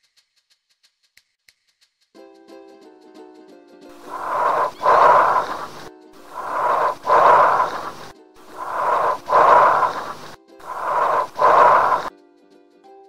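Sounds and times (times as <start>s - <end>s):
breathing through a stethoscope: 3.9s - 12.1s.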